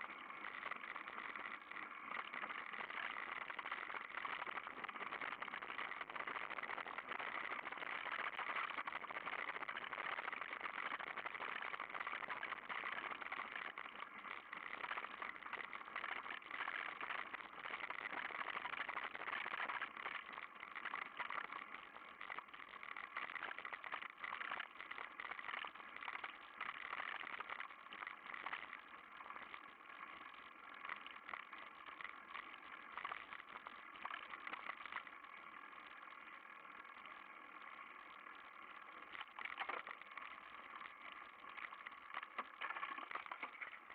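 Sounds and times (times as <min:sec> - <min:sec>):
bike rattling over bumps: 0:18.2 - 0:43.9.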